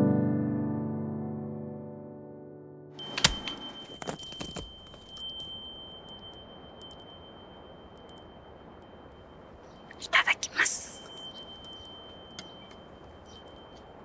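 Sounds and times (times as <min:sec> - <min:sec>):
wind chime ringing: 0:03.0 - 0:14.0.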